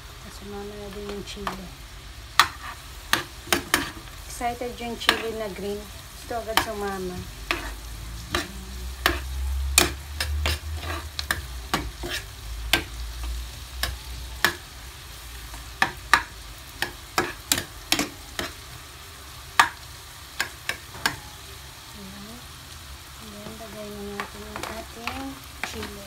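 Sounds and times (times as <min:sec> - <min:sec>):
food sizzling in butter: 0:00.0 - 0:26.0
metal spoon scraping a pan: 0:02.4 - 0:04.1, 0:04.8 - 0:05.6, 0:06.4 - 0:14.6, 0:15.5 - 0:18.7, 0:23.4 - 0:26.0.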